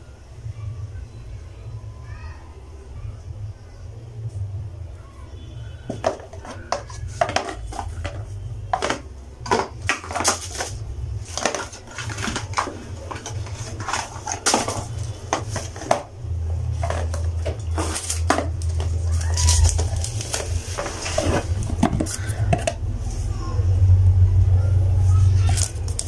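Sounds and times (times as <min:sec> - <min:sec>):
low steady hum: 0:00.0 - 0:26.0
plastic bottles clicking and knocking: 0:05.8 - 0:23.0, 0:25.4 - 0:26.0
packaging rustling: 0:05.9 - 0:16.1, 0:16.7 - 0:22.8.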